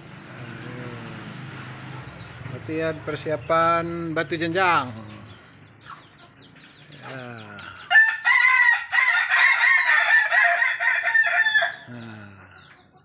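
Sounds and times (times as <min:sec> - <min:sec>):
rooster crowing: 0:07.9 - 0:12.1.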